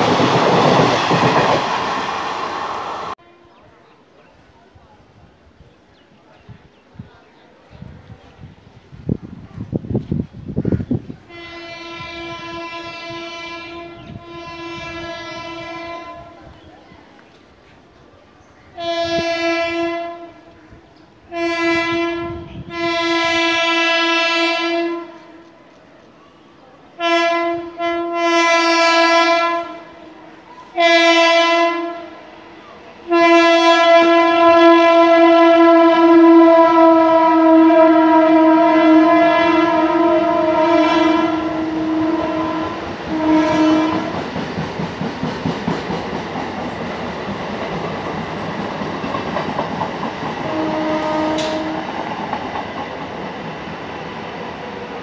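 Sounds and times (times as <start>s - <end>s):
train wheels clattering on rails: 0.0s - 2.1s, 42.8s - 55.0s
train horn blasts: 3.1s - 3.8s, 11.3s - 16.5s, 18.7s - 20.6s, 21.2s - 25.4s, 27.0s - 32.4s, 33.0s - 44.3s, 50.4s - 52.0s.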